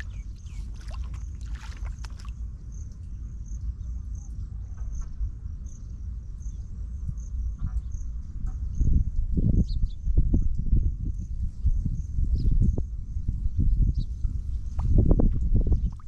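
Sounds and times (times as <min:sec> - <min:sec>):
insect chirping: 0:00.0 - 0:02.8
wind buffeting microphone: 0:00.0 - 0:02.8, 0:07.1 - 0:16.0.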